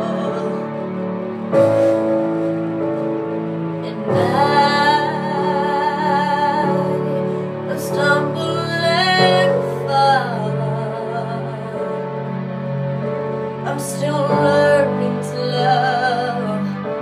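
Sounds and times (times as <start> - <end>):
woman singing a slow ballad: 0.0 - 1.0, 3.8 - 12.2, 13.6 - 17.0
instrumental accompaniment: 0.0 - 17.0.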